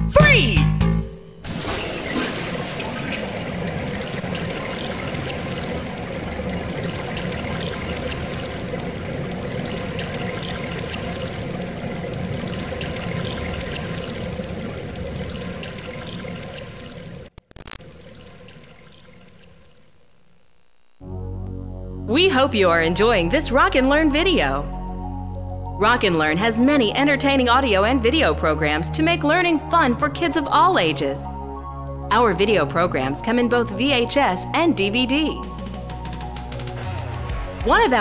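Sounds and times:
water draining: 1.4s - 19.8s.

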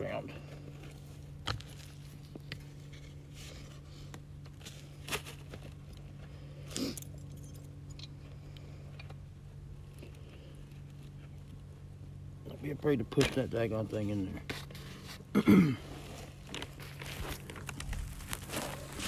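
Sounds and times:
steady low hum: 0.0s - 19.0s
metal trap chain clinking and scraping: 6.8s - 8.2s.

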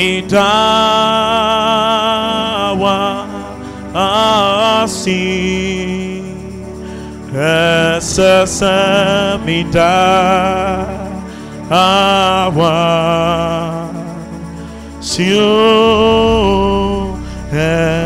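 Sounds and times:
gospel singing: 0.0s - 18.0s.

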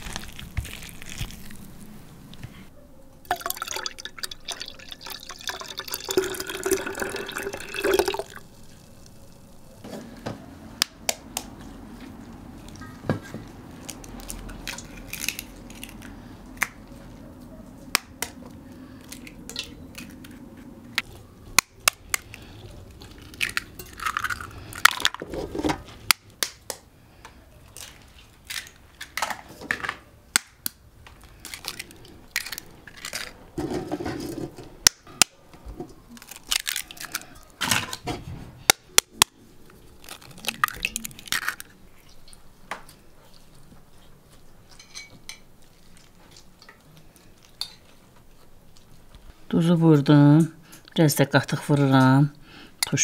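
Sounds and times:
eggs cracking on basin rim: 21.5s - 25.2s, 36.2s - 38.0s, 38.7s - 42.4s.

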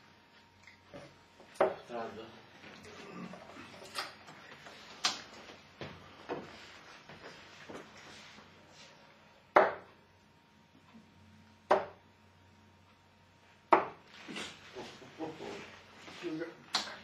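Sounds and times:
darts striking dartboard: 9.5s - 9.9s, 11.7s - 12.0s, 13.7s - 14.0s.

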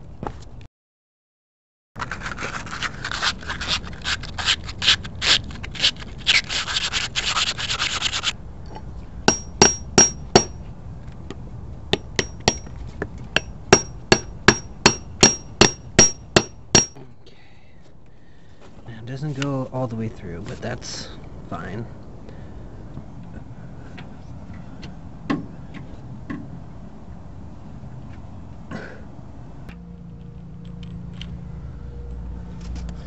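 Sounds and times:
metal sleeve scraping rubber: 2.0s - 8.4s
hammer tapping on metal: 9.3s - 10.6s, 11.9s - 12.7s, 13.4s - 17.0s.

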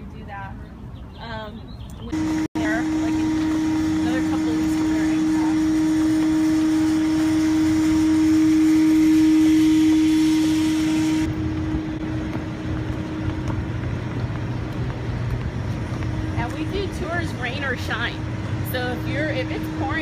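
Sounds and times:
machinery hum with tone: 0.0s - 20.0s.

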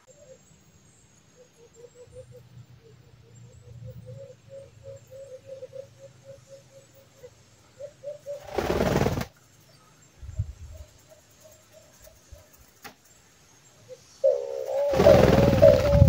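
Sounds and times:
dove hooting: 1.5s - 9.2s, 13.9s - 16.0s.

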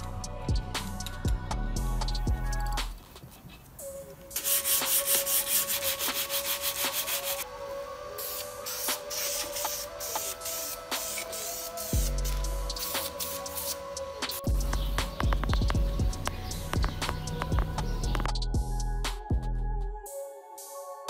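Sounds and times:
abrasive pad scrubbing metal: 4.4s - 7.4s.

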